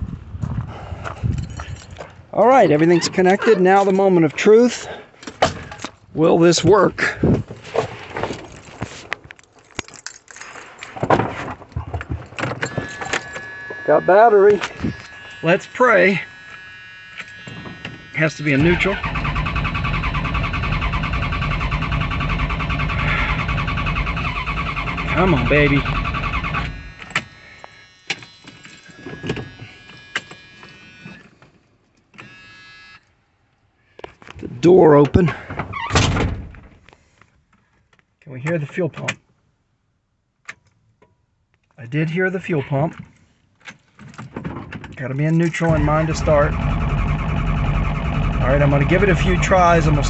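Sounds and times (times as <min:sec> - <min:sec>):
car keys jangling: 0:01.3 - 0:02.1, 0:09.3 - 0:10.9
rustling: 0:07.5 - 0:12.2
fuel pump electric whine: 0:12.6 - 0:31.3, 0:45.7 - 0:50.0.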